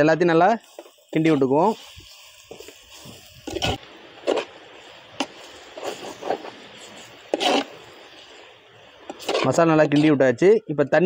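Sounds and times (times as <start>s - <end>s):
faint hiss of frying: 0.0s - 11.0s
metal spoon scraping a clay pot: 5.2s - 7.8s, 9.1s - 10.2s.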